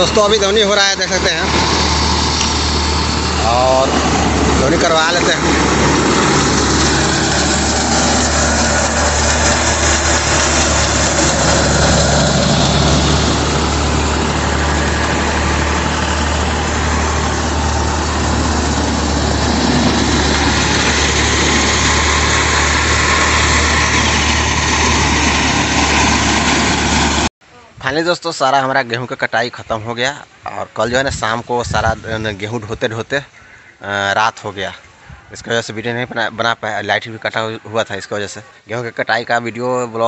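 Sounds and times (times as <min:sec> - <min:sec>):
low drive hum: 0:00.0 - 0:27.2
thresher mechanical din: 0:00.0 - 0:27.3.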